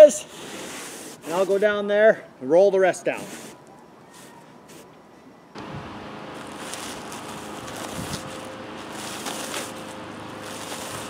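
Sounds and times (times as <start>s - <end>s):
steady mechanical hum: 5.1s - 11.0s
roofing sheet rustling and crinkling: 5.6s - 11.0s.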